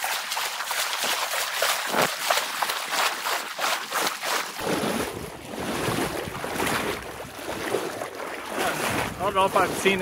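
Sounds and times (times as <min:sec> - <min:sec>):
water splashing while wading: 0:00.0 - 0:10.0
wind buffeting microphone: 0:04.6 - 0:10.0.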